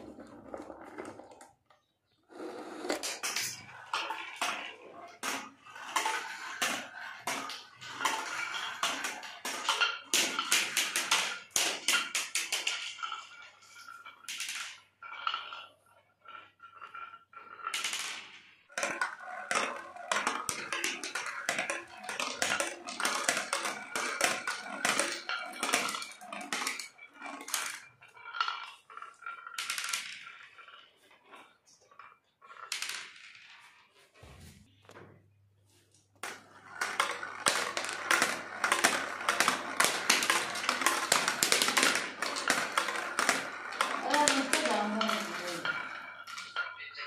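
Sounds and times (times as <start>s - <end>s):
marbles rolling and clattering: 0.0s - 47.0s.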